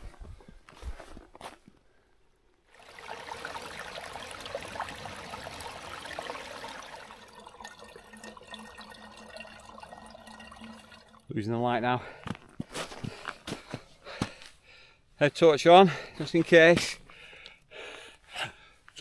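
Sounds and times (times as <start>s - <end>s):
stream splashing over rocks: 2.8s - 11.2s.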